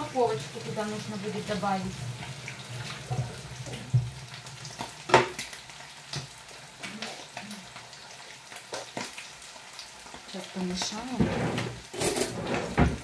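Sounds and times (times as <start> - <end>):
liver sizzling in a pan: 0.0 - 12.2
kitchen knocks and clatters: 2.9 - 6.3, 10.8 - 13.0.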